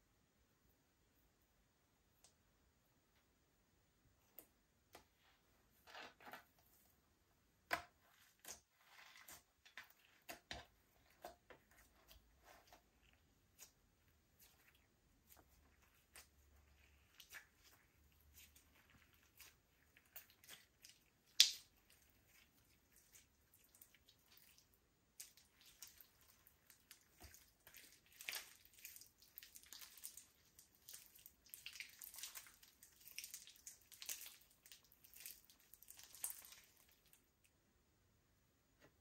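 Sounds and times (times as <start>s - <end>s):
slime squishing with sticky clicks: 7.6s - 37.2s.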